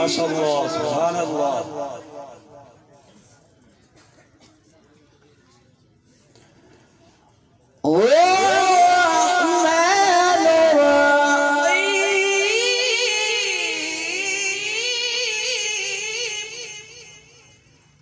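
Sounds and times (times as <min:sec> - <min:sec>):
man reciting melodically into microphone: 0:00.0 - 0:02.8, 0:07.8 - 0:17.5.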